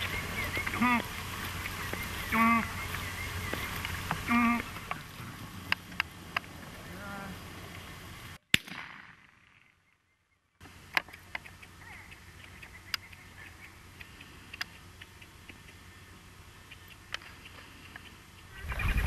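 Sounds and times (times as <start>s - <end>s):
shotgun shot: 8.5s - 9.6s
sharp clicks: 10.6s - 15.9s, 16.7s - 18.5s.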